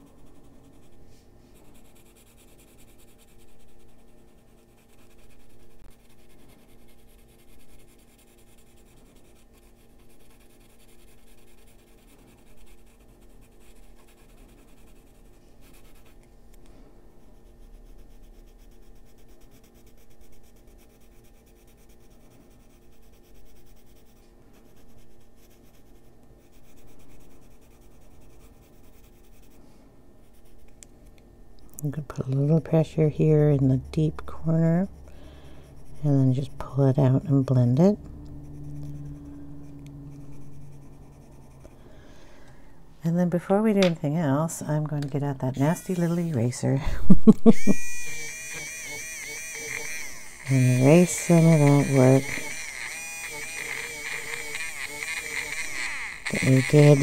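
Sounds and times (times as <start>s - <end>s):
pencil shading on paper: 0.0s - 16.2s, 17.2s - 29.6s, 30.2s - 30.7s, 38.4s - 41.7s, 45.6s - 46.6s, 47.8s - 57.0s.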